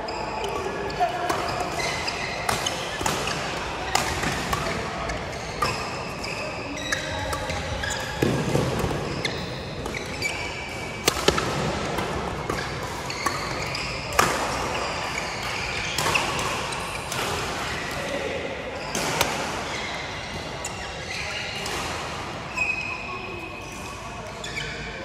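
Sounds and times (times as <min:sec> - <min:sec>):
shoes squeaking on court floor: 0:00.0 - 0:21.8, 0:22.5 - 0:25.0
racket striking shuttlecock: 0:11.0 - 0:14.5.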